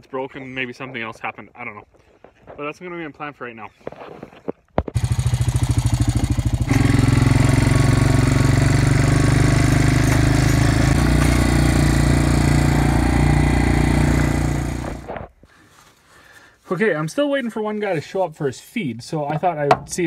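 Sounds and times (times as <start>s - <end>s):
atv engine running: 5.0s - 15.2s.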